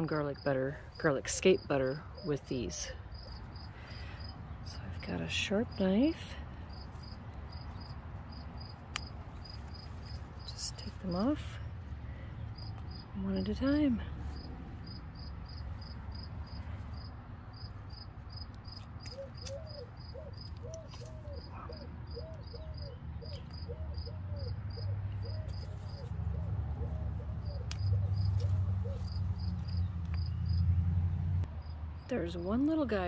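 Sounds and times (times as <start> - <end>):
insect chirping: 3.1 - 4.4, 6.7 - 10.3, 12.5 - 13.1, 14.4 - 20.5, 29.1 - 30.6.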